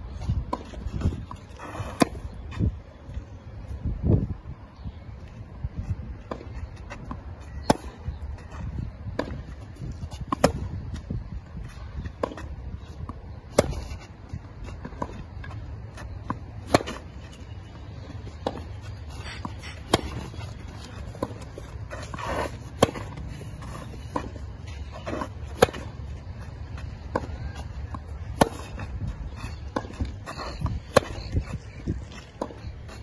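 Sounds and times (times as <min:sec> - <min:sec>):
tennis racket hitting ball: 0:19.4 - 0:24.4, 0:25.0 - 0:28.9, 0:29.5 - 0:31.6.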